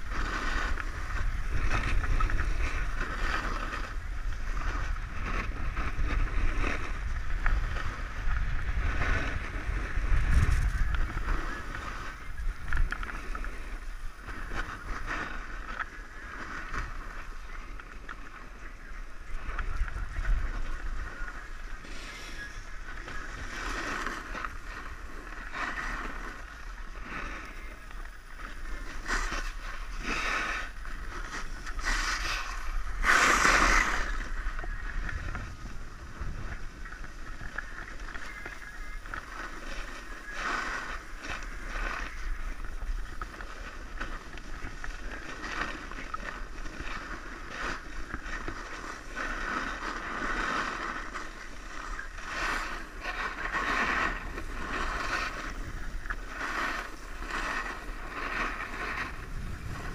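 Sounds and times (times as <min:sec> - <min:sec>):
wind rushing past microphone: 0:00.0 - 0:17.4, 0:51.1 - 0:59.9
skis scraping on snow: 0:00.0 - 0:59.9.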